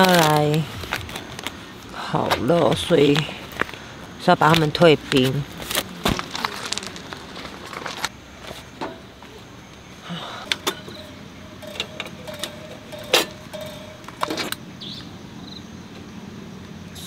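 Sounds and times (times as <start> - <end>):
rustling: 5.0 - 9.5
faint steady tone: 8.2 - 17.0
metal lanterns clicking and knocking: 8.7 - 9.2, 10.4 - 14.6.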